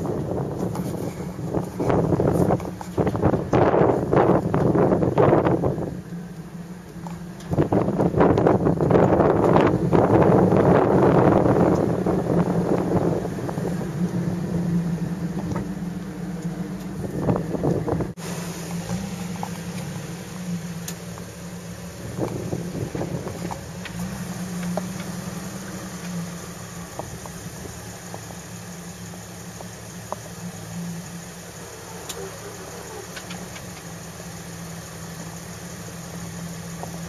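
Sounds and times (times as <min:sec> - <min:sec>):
wind buffeting microphone: 0:00.0 - 0:29.4
car engine running: 0:00.0 - 0:37.0
faint clicks: 0:32.0 - 0:33.9.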